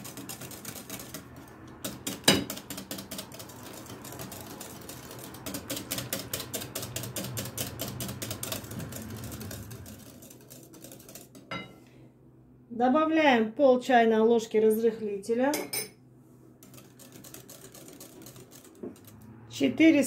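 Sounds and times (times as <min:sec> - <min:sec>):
whisk clicking against glass bowl: 0:00.0 - 0:11.6, 0:16.6 - 0:19.3.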